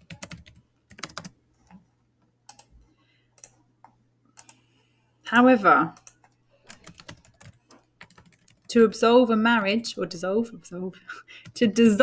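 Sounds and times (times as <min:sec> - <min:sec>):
typing on computer keyboard: 0:00.0 - 0:01.3, 0:06.0 - 0:08.7.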